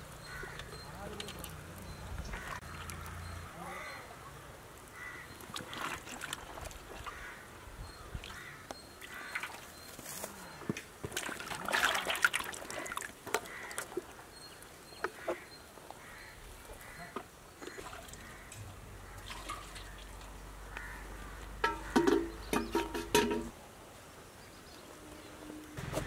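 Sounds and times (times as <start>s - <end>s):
birds calling: 0.0s - 10.8s, 12.7s - 23.5s.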